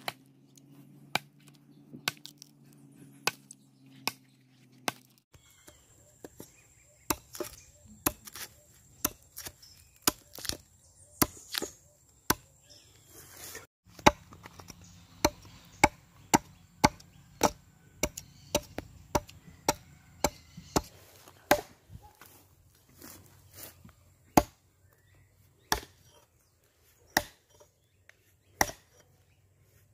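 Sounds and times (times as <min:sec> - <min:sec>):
hand tools chopping wood: 0:00.0 - 0:00.3, 0:01.1 - 0:02.5, 0:03.2 - 0:12.5, 0:13.9 - 0:22.2, 0:24.3 - 0:24.6, 0:25.6 - 0:26.2, 0:27.0 - 0:29.1.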